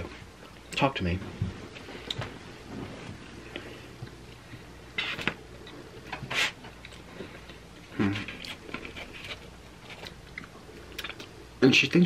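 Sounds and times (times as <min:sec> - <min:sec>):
chewing pizza: 0:05.0 - 0:11.4.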